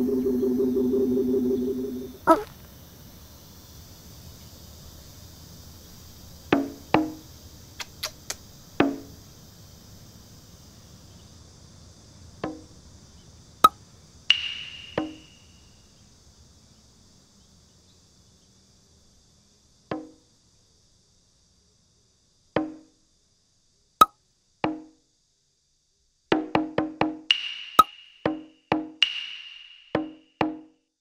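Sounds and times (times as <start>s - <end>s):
sharp clicks: 7.8s - 8.4s.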